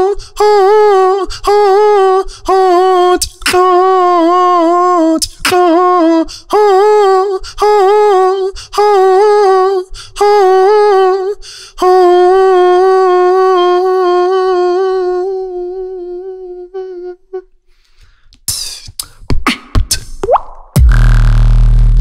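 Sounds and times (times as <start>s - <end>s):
beatbox clicks and swoops: 17.9s - 21.5s
beatboxer humming into microphone: 18.4s - 21.6s.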